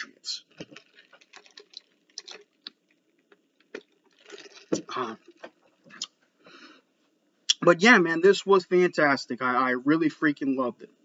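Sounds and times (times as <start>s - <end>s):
man sipping through a straw: 0.4s - 2.8s, 3.6s - 5.4s
mouth clicks and swallows: 0.4s - 6.2s
breathy exhale: 6.4s - 6.9s.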